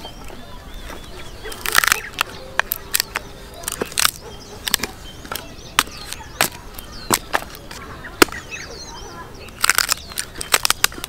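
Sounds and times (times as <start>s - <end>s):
axe chopping firewood: 1.6s - 8.5s, 9.5s - 11.0s.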